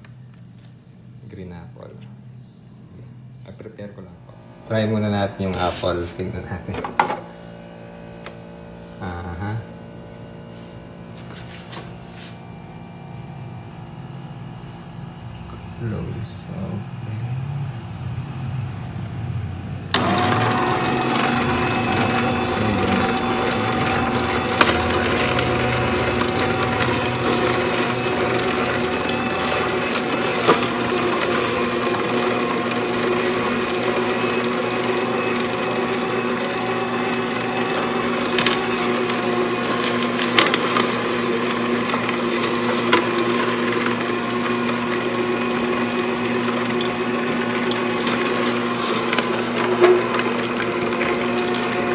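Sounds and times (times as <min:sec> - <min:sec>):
juicer motor hum: 0:04.3 - 0:51.9
auger crushing apple pieces: 0:19.9 - 0:51.9.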